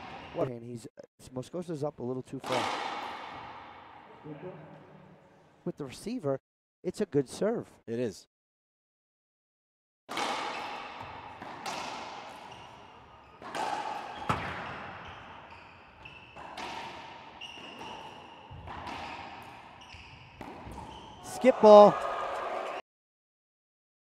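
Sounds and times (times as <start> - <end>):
racquetball hits ringing: 10.1 - 19.8, 20.4 - 21.0.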